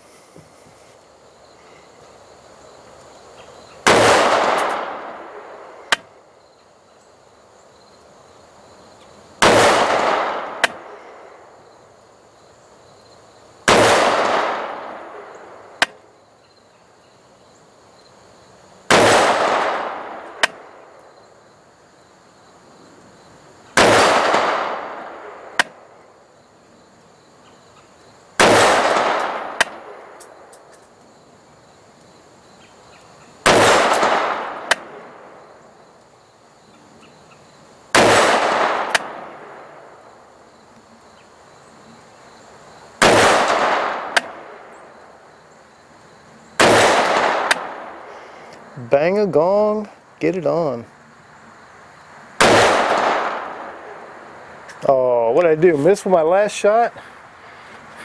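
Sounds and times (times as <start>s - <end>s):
rifle shots: 3.8s - 5.3s, 9.4s - 10.9s, 13.7s - 15.1s, 18.9s - 20.6s, 23.8s - 25.8s, 28.4s - 29.9s, 33.4s - 35.2s, 37.9s - 39.4s, 43.0s - 44.5s, 46.6s - 48.0s, 52.4s - 53.8s.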